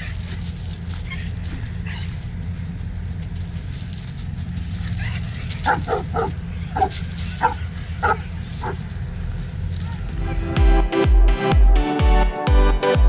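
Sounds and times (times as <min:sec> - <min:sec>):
dog barking: 0:01.1 - 0:02.2, 0:05.0 - 0:08.9.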